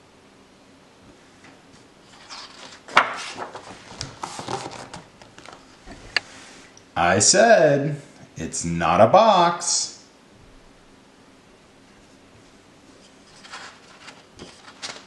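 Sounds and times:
paper rustling and sliding: 0:02.0 - 0:06.7, 0:12.8 - 0:15.0.

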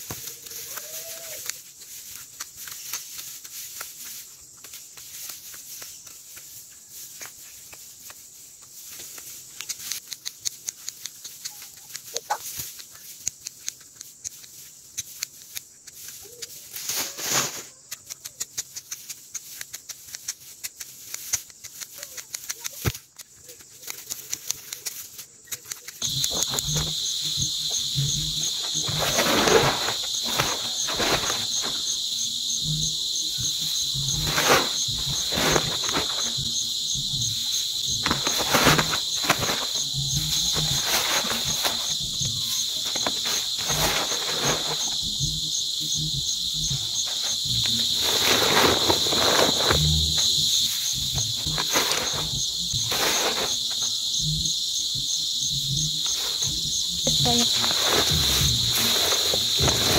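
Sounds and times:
snipping of grass stalks: 0:00.0 - 0:08.3, 0:08.9 - 0:27.0, 0:28.4 - 0:32.0, 0:37.5 - 0:45.0
insects chirring: 0:00.0 - 0:59.9
grass tearing and rustling: 0:23.8 - 0:45.4, 0:46.6 - 0:53.9, 0:56.0 - 0:59.9.

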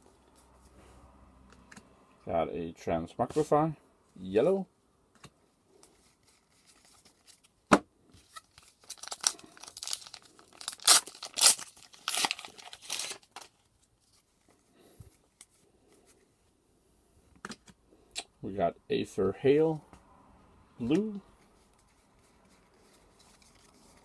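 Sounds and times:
foil pack tearing and crinkling: 0:08.3 - 0:13.7.

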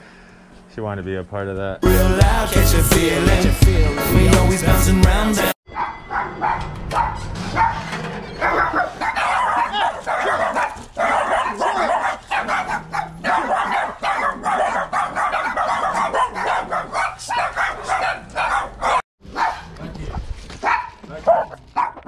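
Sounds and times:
small dogs yapping and barking: 0:05.7 - 0:19.8, 0:20.5 - 0:22.0.

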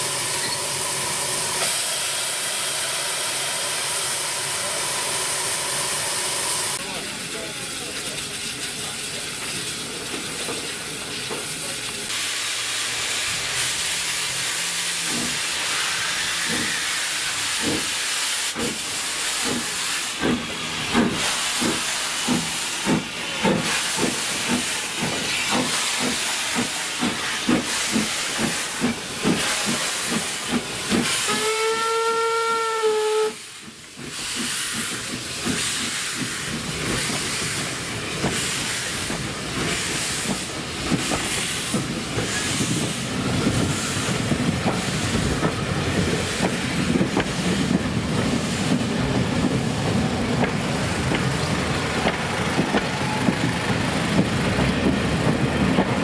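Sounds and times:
steam hiss: 0:00.0 - 0:55.8
steam locomotive exhaust chuffs: 0:12.2 - 0:56.0
steam whistle: 0:31.2 - 0:33.4.

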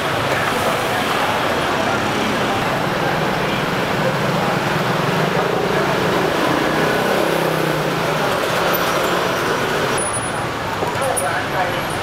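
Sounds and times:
street traffic noise: 0:00.0 - 0:12.0
vehicle engines running close by: 0:00.0 - 0:12.0.

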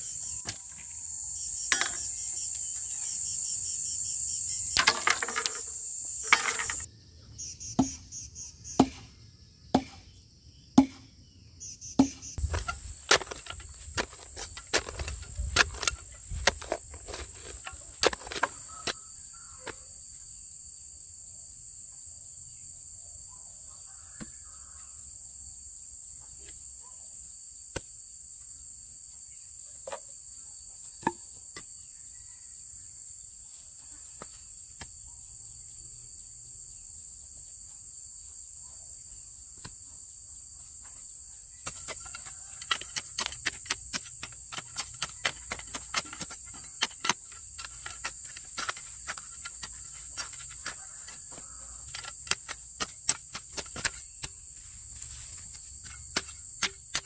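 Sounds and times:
insect chorus trilling: 0:00.0 - 0:09.2, 0:10.5 - 0:23.0, 0:39.0 - 0:57.0.

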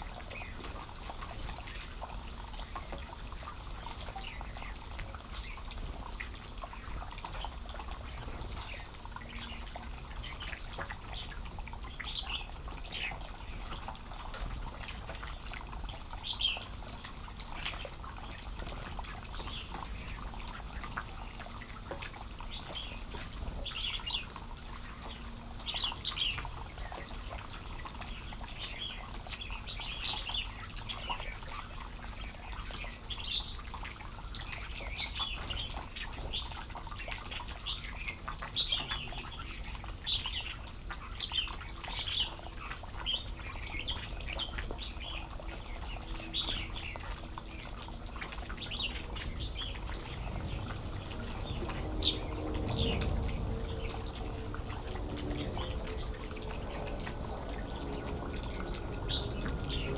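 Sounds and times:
water dripping and splashing: 0:00.0 - 0:59.9
birds chirping: 0:34.3 - 0:57.8.

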